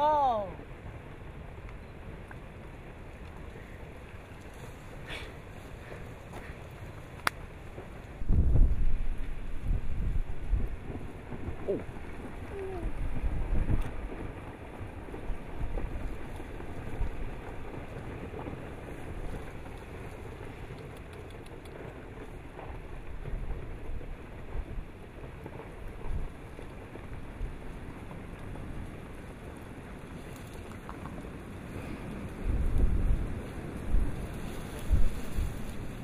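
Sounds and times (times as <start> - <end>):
rumbling rush of tumbling rocks: 0.0 - 36.0
wind buffeting microphone: 0.5 - 36.0
faint clicks of rocks: 3.2 - 7.5, 19.2 - 23.4, 30.1 - 32.9.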